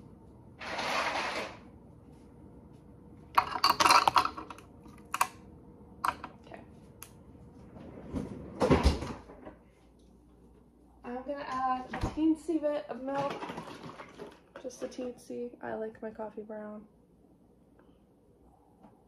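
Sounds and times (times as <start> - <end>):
clatter and thump: 8.0 - 9.5.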